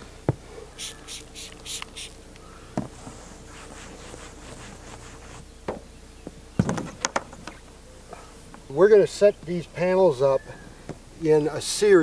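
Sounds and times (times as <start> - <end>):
spray bottle spritzes: 0.8 - 2.2
rag wiping a roof: 3.0 - 5.4.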